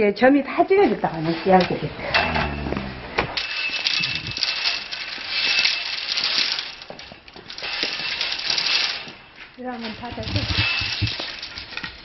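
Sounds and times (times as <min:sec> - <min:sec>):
bamboo slats rattling and clacking: 0:01.4 - 0:12.0.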